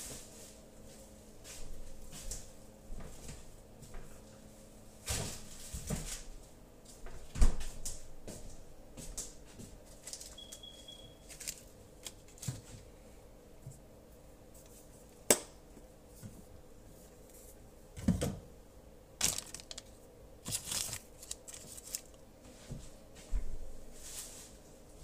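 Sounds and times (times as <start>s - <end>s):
high beep: 10.4s - 11.3s
rustling: 11.2s - 12.9s, 19.2s - 22.2s.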